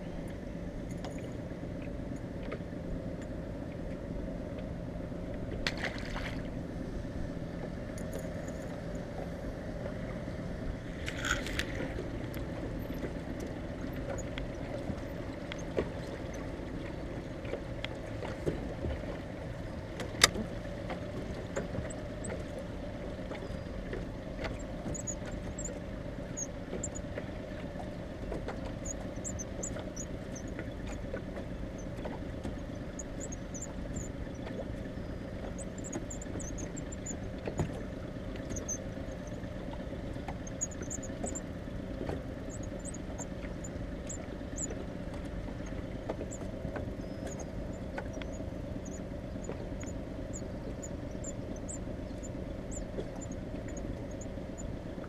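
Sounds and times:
outboard motor running: 0.0s - 55.0s
fishing reel squeaking: 28.8s - 30.5s, 38.5s - 39.4s, 40.5s - 41.4s.

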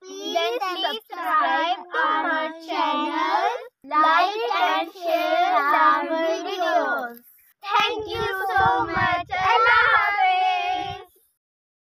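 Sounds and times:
girls chanting together: 1.2s - 6.9s, 7.7s - 11.1s.

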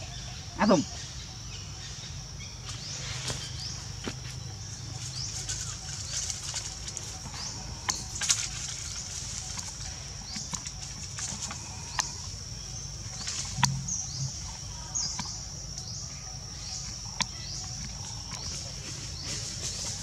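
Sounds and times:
steady high-pitched drone: 10.7s - 17.5s.

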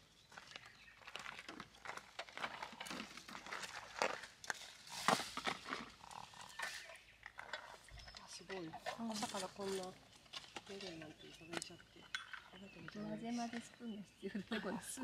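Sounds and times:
footsteps crunching on gravel: 0.0s - 7.0s.

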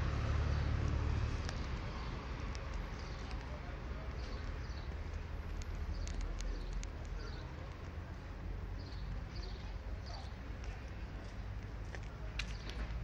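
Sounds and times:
steady low rumble: 0.0s - 13.0s
small birds chirping: 0.1s - 13.0s
sharp clicks: 0.8s - 8.1s.

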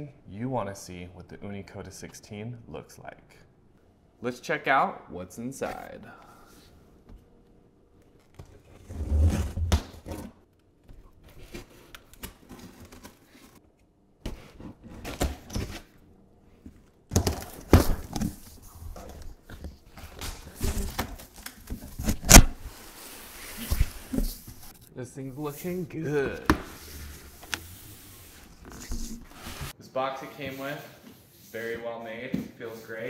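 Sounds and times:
cardboard flaps rustling and scraping: 8.2s - 10.4s, 17.2s - 24.7s, 26.2s - 29.8s.

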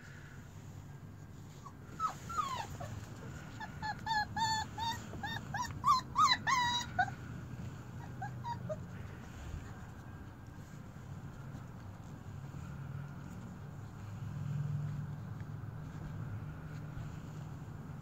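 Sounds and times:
puppies whimpering: 1.6s - 9.4s.

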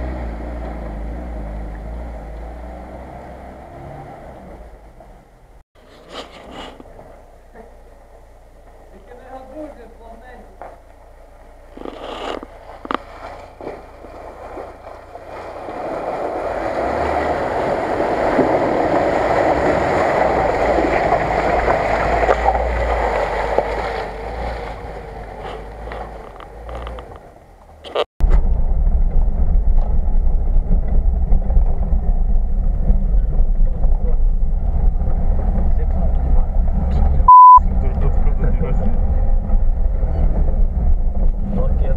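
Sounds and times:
car engine: 0.0s - 41.9s
water washing around car: 11.2s - 27.8s
low rumble inside car cabin: 26.8s - 41.9s.

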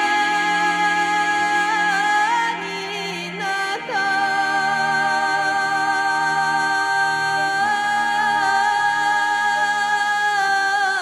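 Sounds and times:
music of sustained notes: 0.0s - 11.0s.

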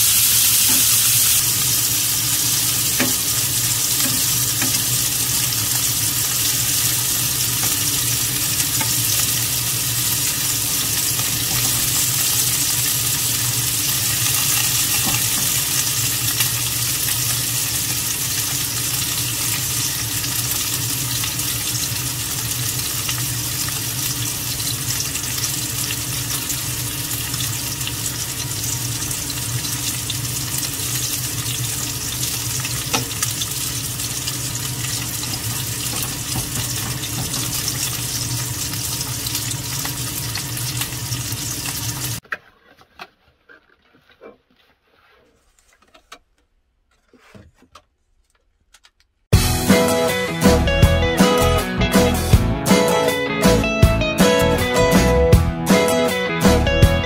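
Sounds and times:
pork sizzling in a frying pan: 0.0s - 42.2s.

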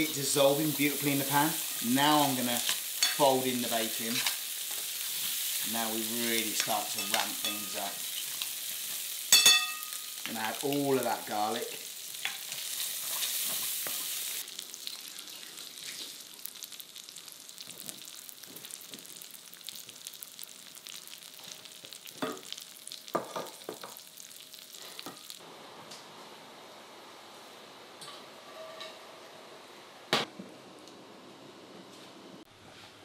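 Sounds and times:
meat sizzling in frying pan: 0.0s - 25.4s.

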